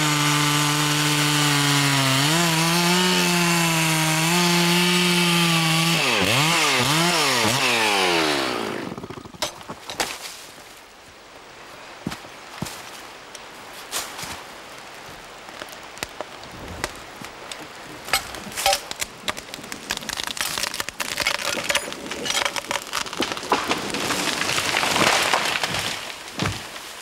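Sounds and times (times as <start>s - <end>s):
tree trunk cracking and splitting: 0.0s - 10.4s, 15.0s - 27.0s
branches snapping: 15.2s - 27.0s
falling tree heavy thump: 16.2s - 26.8s.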